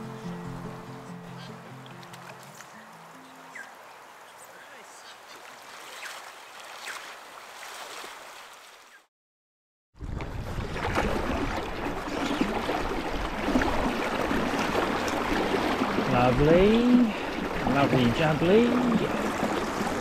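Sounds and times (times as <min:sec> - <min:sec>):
flowing river water: 0:00.0 - 0:09.1, 0:10.0 - 0:20.0
wind buffeting the microphone: 0:10.0 - 0:14.5.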